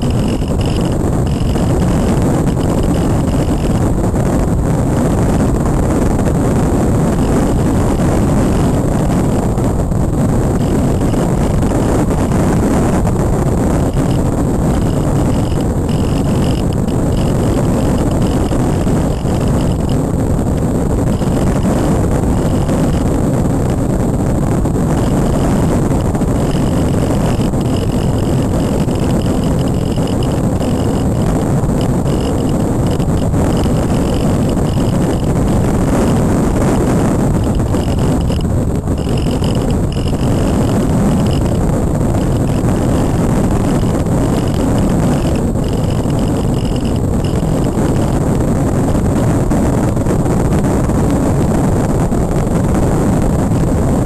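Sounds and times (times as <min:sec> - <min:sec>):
faint high whine: 0:00.0 - 0:54.0
wind buffeting microphone: 0:00.0 - 0:54.0.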